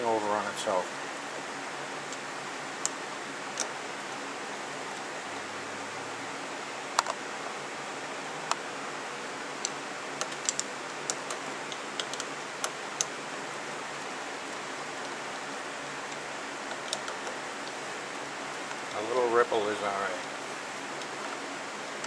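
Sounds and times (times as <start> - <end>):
steady hiss: 0.0 - 22.0
sharp metallic clicks: 16.1 - 19.0.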